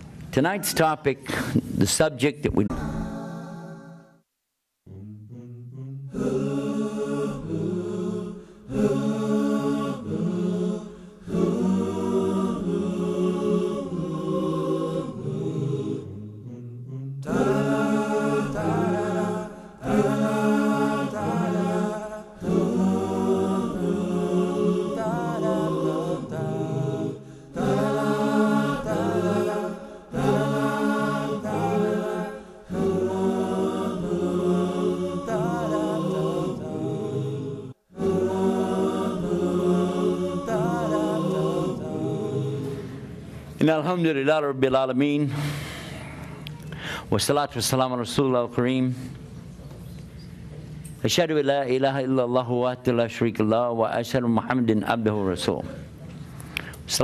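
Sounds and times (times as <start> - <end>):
unaccompanied vocal chanting: 2.5 - 4.1, 4.9 - 46.6.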